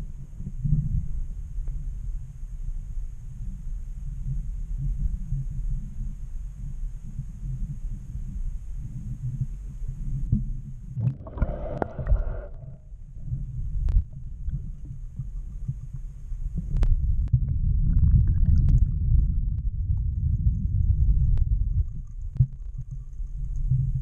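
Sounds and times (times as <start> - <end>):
muffled underwater rumble: 0.0 - 24.0.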